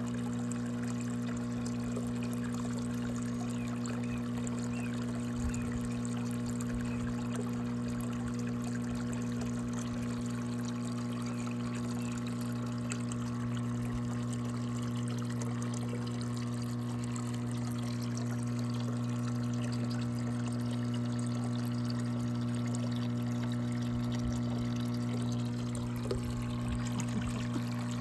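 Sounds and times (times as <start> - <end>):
constant low hum: 0.0 - 28.0
water pouring into a tub: 0.0 - 28.0.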